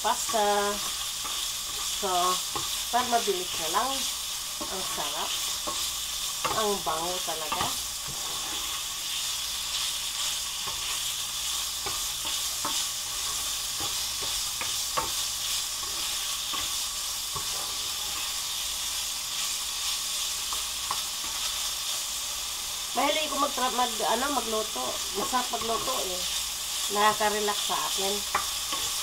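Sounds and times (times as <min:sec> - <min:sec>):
chicken sizzling in a frying pan: 0:00.0 - 0:29.0
spatula scraping and tapping: 0:00.2 - 0:01.9, 0:02.5 - 0:02.8, 0:04.6 - 0:06.8, 0:07.4 - 0:08.8, 0:09.7 - 0:11.1, 0:11.8 - 0:18.3, 0:20.5 - 0:21.6, 0:28.3 - 0:29.0.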